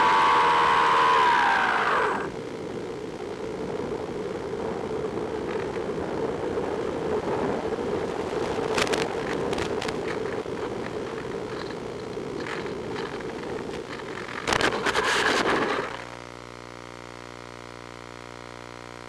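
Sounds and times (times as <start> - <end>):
electric motor winding down: 0.0 - 2.4.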